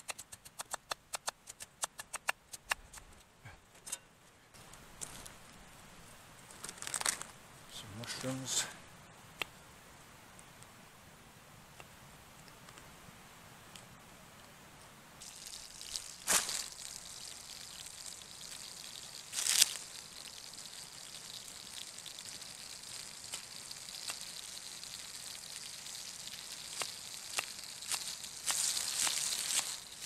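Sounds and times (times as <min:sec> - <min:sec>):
burgers sizzling in a pan: 0:15.2 - 0:30.0.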